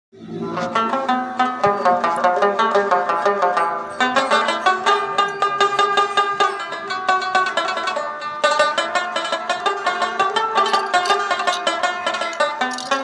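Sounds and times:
fast plucked-string melody: 0:00.2 - 0:13.0.

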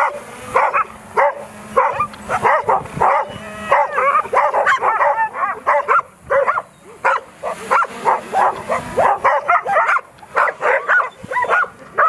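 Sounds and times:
dogs barking and yelping: 0:00.0 - 0:12.0.

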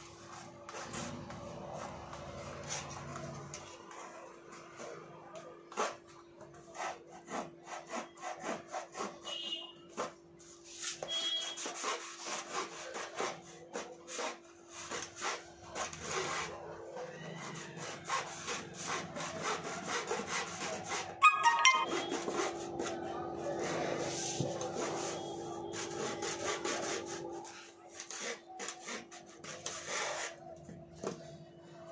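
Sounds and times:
blade sawing through cardboard tube: 0:00.1 - 0:05.0, 0:05.6 - 0:21.2, 0:21.9 - 0:30.6
sharp squeak: 0:21.2 - 0:22.3.

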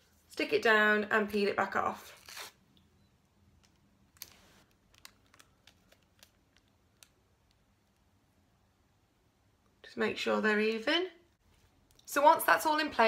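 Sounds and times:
tape rustling: 0:02.0 - 0:02.6, 0:03.6 - 0:08.2.

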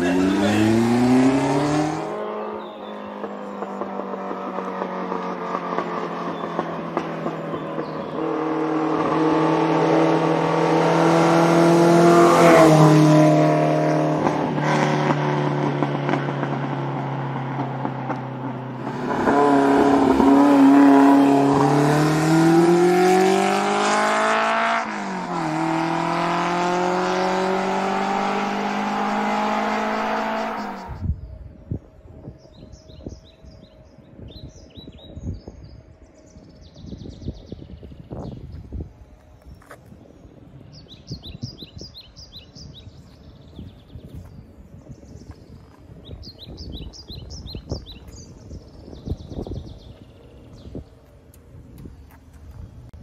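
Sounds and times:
sports car engine accelerating: 0:00.0 - 0:31.0.

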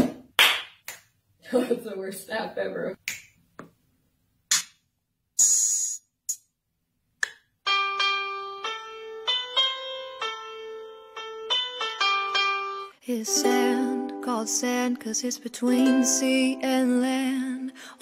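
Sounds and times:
finger snaps: 0:03.0 - 0:03.7, 0:07.2 - 0:07.5
electronic piano melody: 0:07.7 - 0:14.3.

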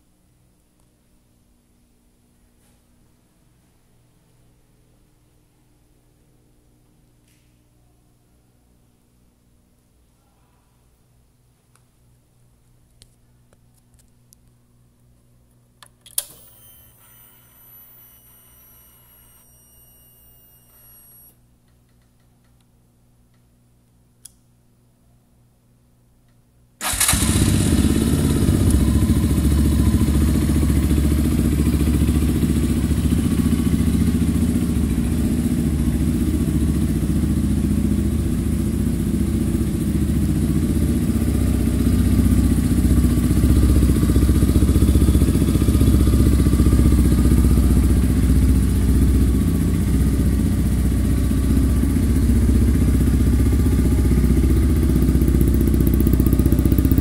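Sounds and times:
motor scooter engine idling: 0:26.8 - 0:57.0.

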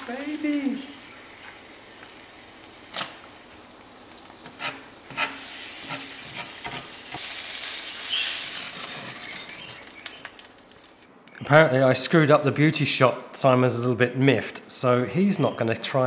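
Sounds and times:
egg sizzling in a pan: 0:00.0 - 0:11.1.

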